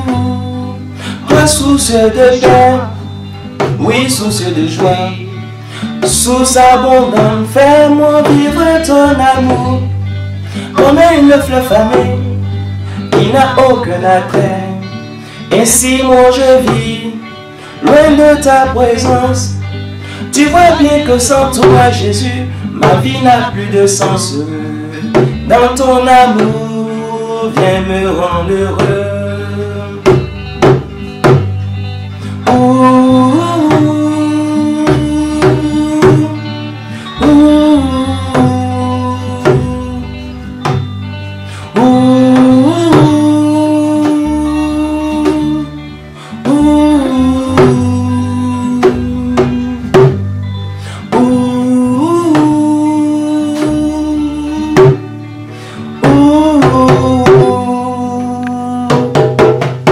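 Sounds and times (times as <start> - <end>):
hand drum struck with palm: 58.9 - 59.9.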